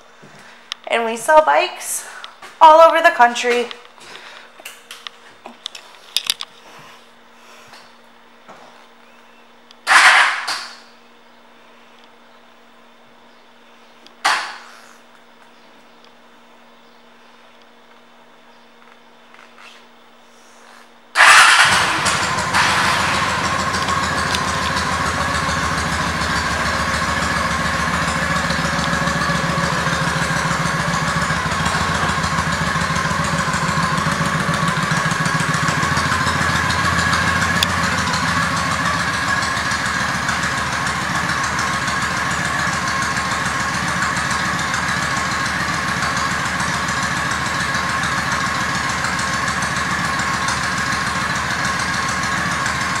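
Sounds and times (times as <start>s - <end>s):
motorcycle engine idling: 21.2s - 53.0s.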